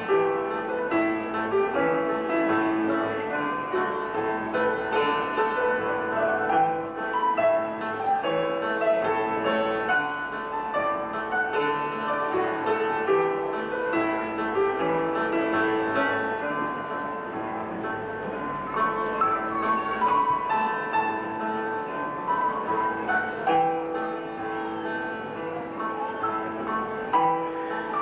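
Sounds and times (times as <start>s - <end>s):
upright piano playing chords: 0.0s - 28.0s.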